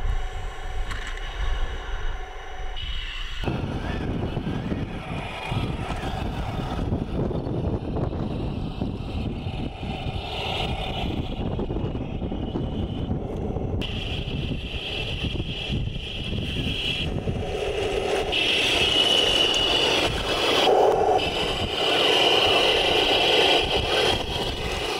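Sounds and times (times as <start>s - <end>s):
wind rumbling on microphone: 0.0s - 24.9s
toy tank electric motor whining: 3.4s - 24.9s
plastic tracks grinding over dirt: 13.8s - 24.9s.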